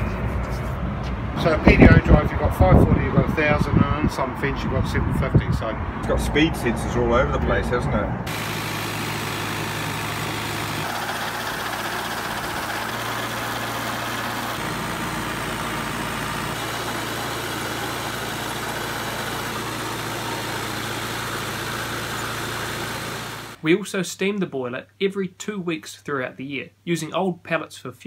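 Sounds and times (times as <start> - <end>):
tractor engine running: 8.3 - 23.6.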